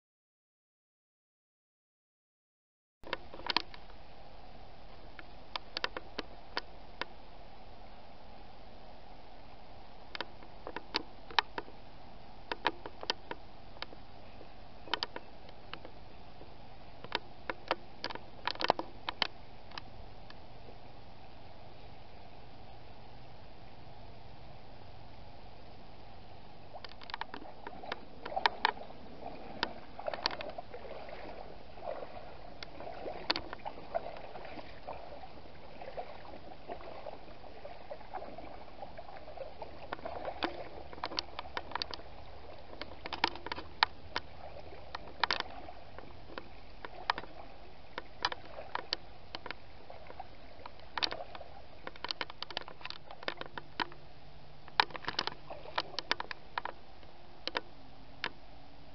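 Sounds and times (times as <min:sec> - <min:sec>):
boots splashing through water: 0:27.2 - 0:53.8.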